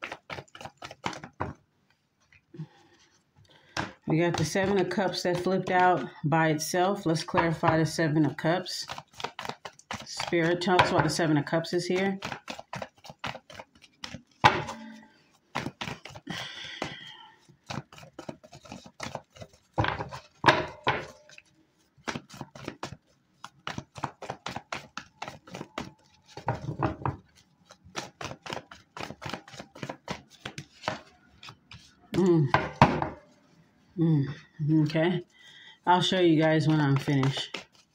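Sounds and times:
cards being shuffled: 0:00.0 - 0:01.6, 0:07.2 - 0:33.4, 0:36.0 - 0:37.9.

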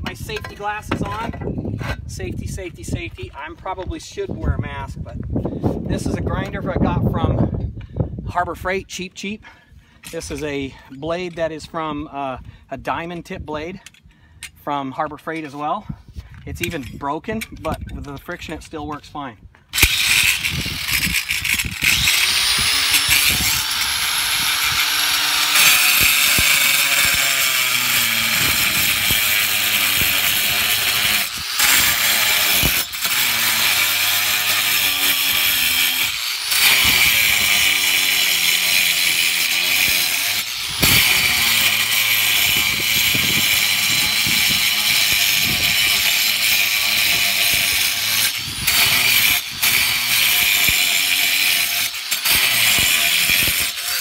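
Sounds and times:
angle grinder cutting tile: 0:19.8 - 0:54.0.

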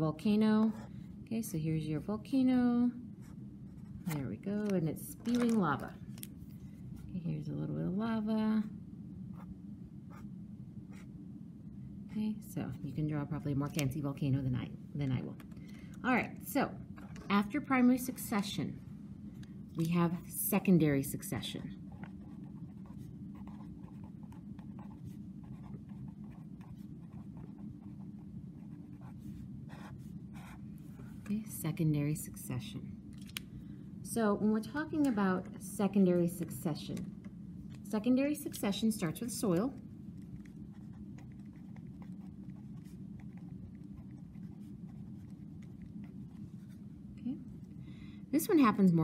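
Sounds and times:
steady low hum: 0:00.0 - 0:49.0
pen scratching on paper: 0:22.0 - 0:31.1, 0:40.2 - 0:46.8.

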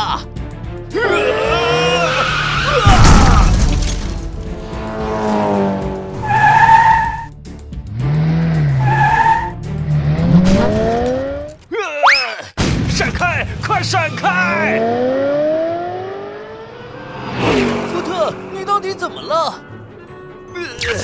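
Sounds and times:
background music: 0:00.0 - 0:11.7, 0:13.1 - 0:21.0
tyres squealing: 0:01.0 - 0:03.9, 0:06.2 - 0:07.3, 0:08.7 - 0:09.6
engine revving: 0:01.1 - 0:11.6, 0:14.0 - 0:21.0
loud crash: 0:02.8 - 0:04.7.

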